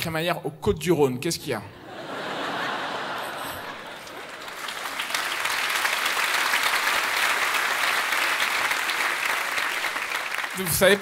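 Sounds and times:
audience applauding: 2.7 - 11.0.

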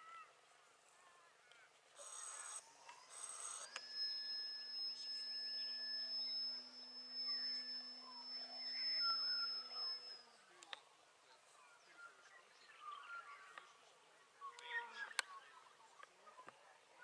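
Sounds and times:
electric motor and propeller whine: 2.0 - 10.5.

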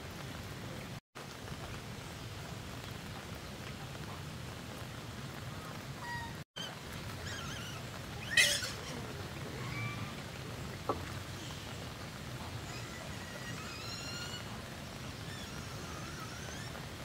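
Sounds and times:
loud sharp squawk: 6.0 - 9.0.

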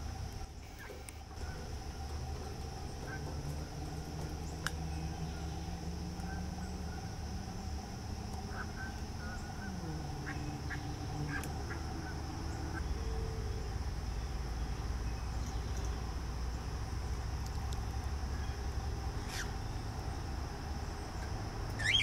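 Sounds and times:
low rumble: 0.0 - 21.8
ducks and geese calling: 0.6 - 13.9, 18.2 - 20.0, 21.0 - 22.0
small bird chirps: 18.4 - 20.0, 20.9 - 22.0.

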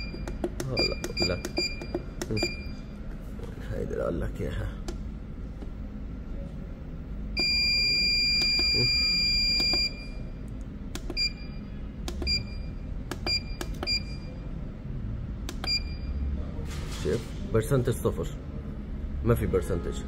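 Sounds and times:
finger taps on panel: 0.0 - 2.6
control panel beeps: 0.0 - 2.8, 7.4 - 10.2, 11.0 - 14.4, 15.5 - 16.2.

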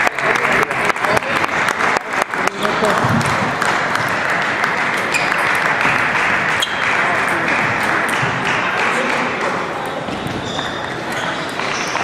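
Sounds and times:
chatter: 0.0 - 12.0
table tennis balls clattering: 4.8 - 12.0.

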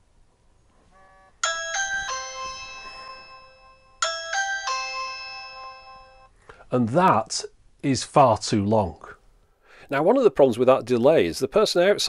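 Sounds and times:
electronic ding-dong chime: 1.1 - 6.3.

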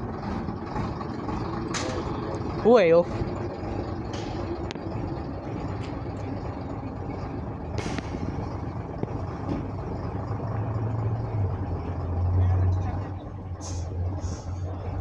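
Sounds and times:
bus engine rumbling: 0.0 - 15.0.

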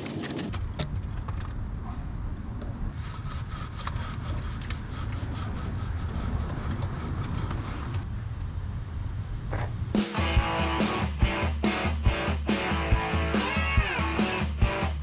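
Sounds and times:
fast regular scraping strokes: 2.9 - 8.1
guitar music: 10.2 - 15.0.

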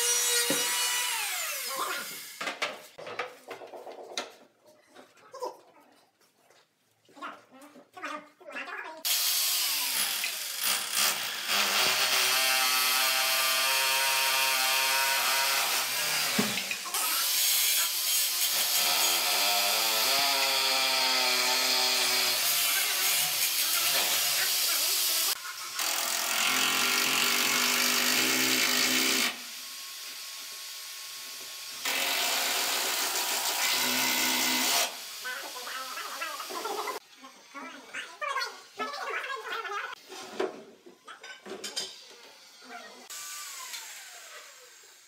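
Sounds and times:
electric drill running: 0.0 - 2.4, 9.0 - 37.0, 42.4 - 45.0.

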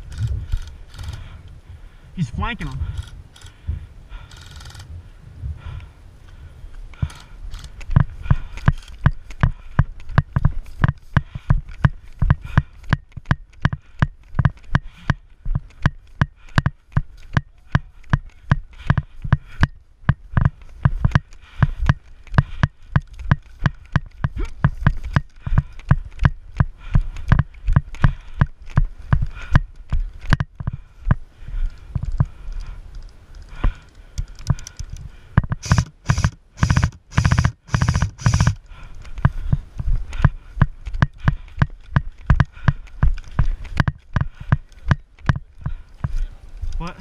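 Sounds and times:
running footsteps on dry grass: 2.2 - 47.0
gear clicking: 7.0 - 39.4.

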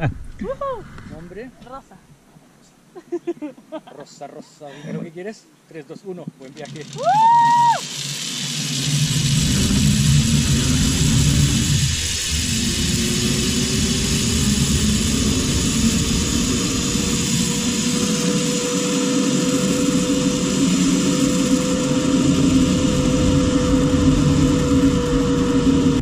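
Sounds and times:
zip-line trolley whirring: 6.4 - 26.0
low rumble: 7.0 - 26.0.

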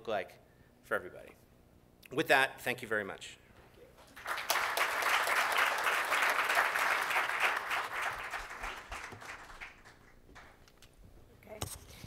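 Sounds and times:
audience applause: 4.2 - 10.6.

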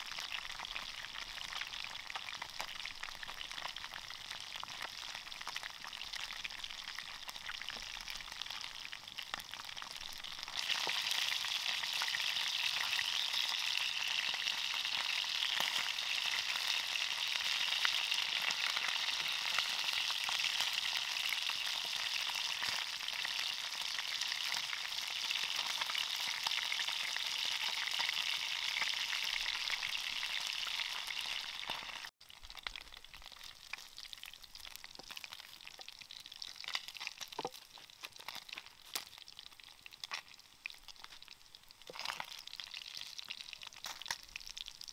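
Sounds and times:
fish sizzling in hot oil: 0.0 - 44.9.

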